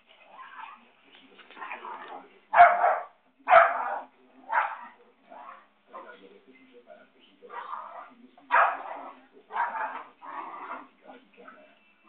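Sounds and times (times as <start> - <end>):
dog barking: 2.5 - 6.1, 7.5 - 10.9.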